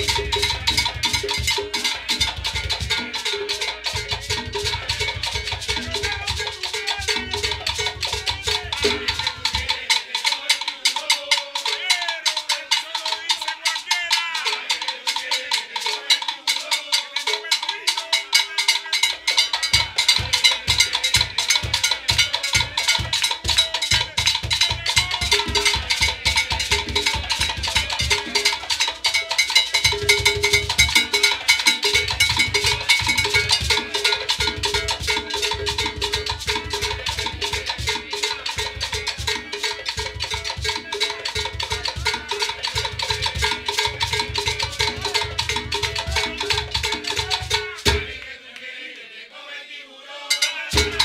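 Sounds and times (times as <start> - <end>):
low drums playing: 0.0 - 9.6, 50.7 - 51.0
clave and sticks clattering: 50.3 - 51.0.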